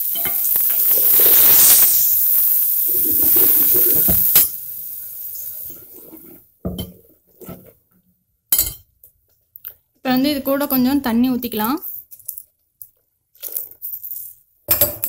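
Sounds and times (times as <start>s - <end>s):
paste sizzling in hot pot: 0.0s - 6.5s.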